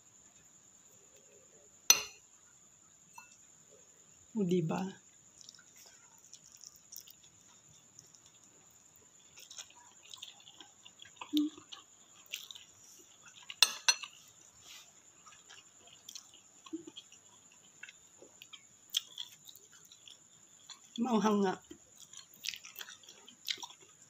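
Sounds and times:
chewing and mouth sounds: 5.3s - 21.0s, 21.6s - 24.0s.

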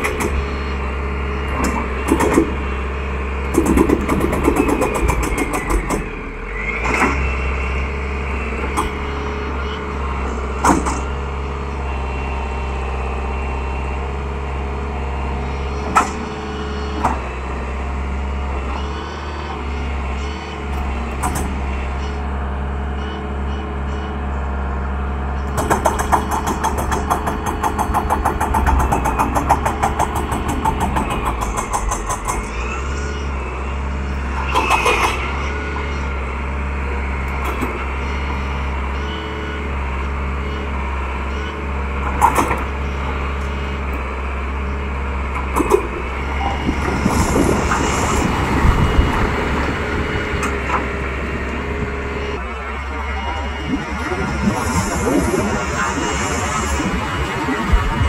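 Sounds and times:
excavator diesel engine under load: 0.0s - 58.0s
hydraulic whine: 0.0s - 58.0s
rapid rattling clatter: 25.6s - 32.6s.

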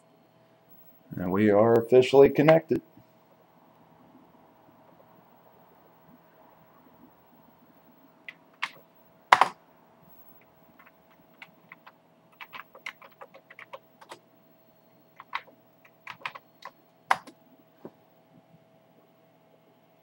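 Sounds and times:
keyboard keys clicking: 8.3s - 9.6s, 10.8s - 14.2s, 15.2s - 17.4s
loud keyboard clack: 8.6s - 9.6s, 10.8s - 14.2s, 15.2s - 17.4s.

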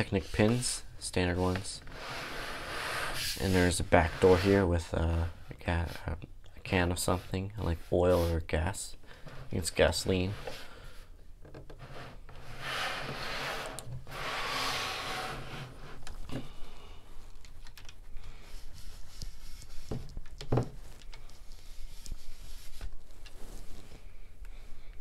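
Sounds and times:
soft rubbing rushes: 0.0s - 6.0s, 6.7s - 10.8s, 11.8s - 16.0s, 18.4s - 20.1s, 20.8s - 24.3s.

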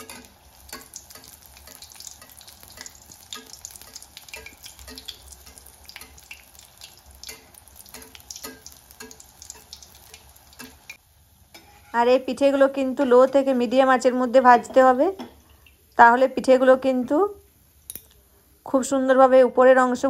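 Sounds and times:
metal spatula in oil: 0.0s - 12.2s
hot oil sizzling and crackling: 0.0s - 14.7s.

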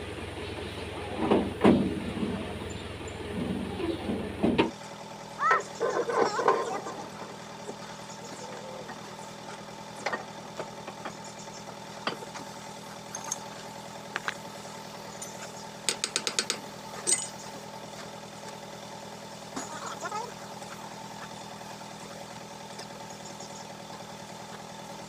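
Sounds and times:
engine idling: 0.0s - 25.0s
metal clicks and knocks: 15.9s - 17.4s.

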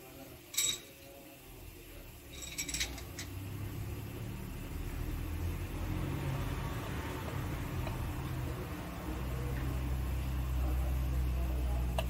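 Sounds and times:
steel pushrods clinking: 2.3s - 3.4s.

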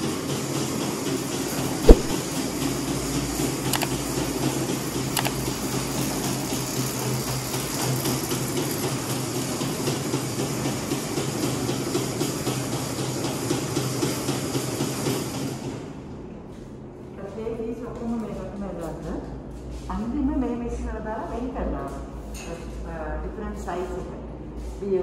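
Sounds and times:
sharp knock: 1.9s - 2.2s.

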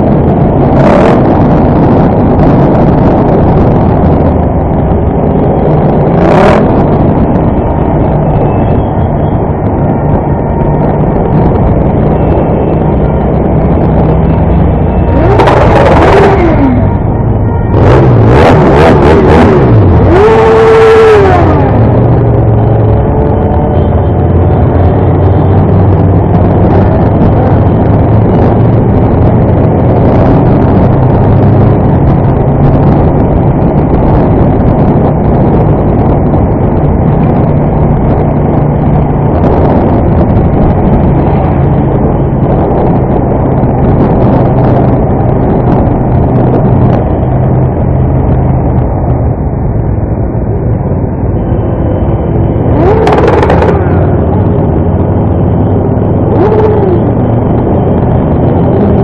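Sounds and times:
constant rush of noise: 0.0s - 59.0s
motorcycle engine droning: 0.0s - 59.0s.

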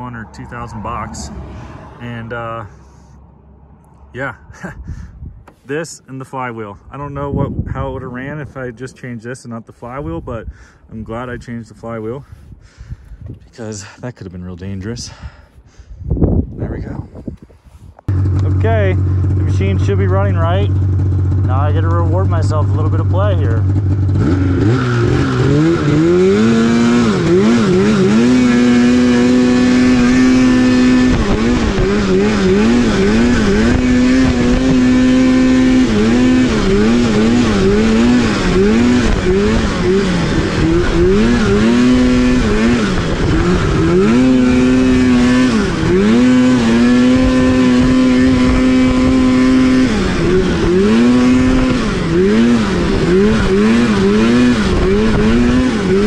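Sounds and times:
snowmobile engine revving: 18.1s - 56.0s.

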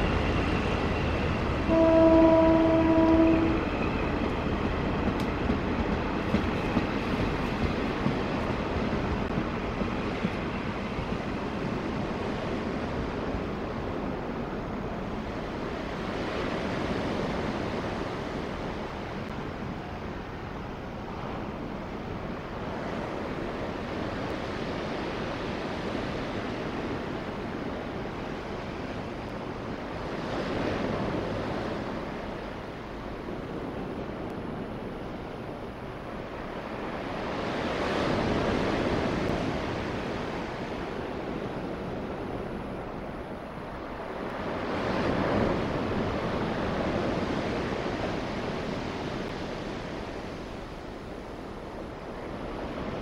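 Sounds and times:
ocean surf breaking: 22.6s - 53.0s.

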